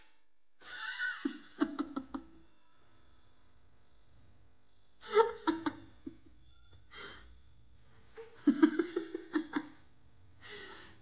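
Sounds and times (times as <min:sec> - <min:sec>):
person laughing: 0:00.6 - 0:02.4
choppy giggles: 0:08.2 - 0:09.8.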